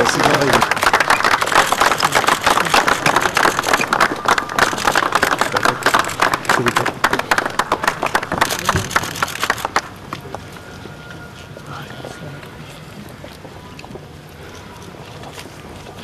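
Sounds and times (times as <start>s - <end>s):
crowd applauding: 0.0s - 10.0s.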